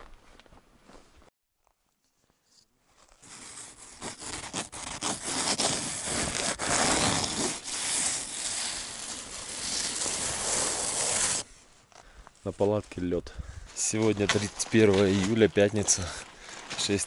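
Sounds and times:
hand scratching frosty tent fabric: 2.4 - 11.5.

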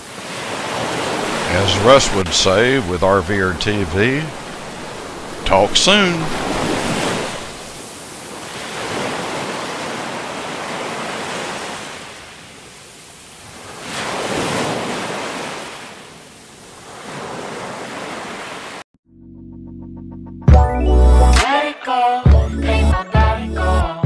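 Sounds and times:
ocean surf washing in: 0.0 - 18.8.

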